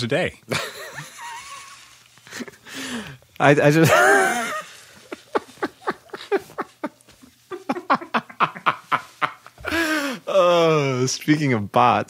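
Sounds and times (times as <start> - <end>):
person giggling: 3.8 - 10.8.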